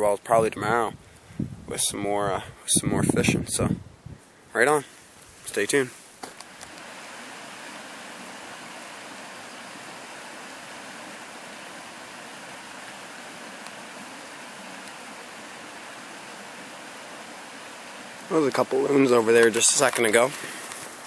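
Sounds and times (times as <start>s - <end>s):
flowing stream water: 4.8s - 21.0s.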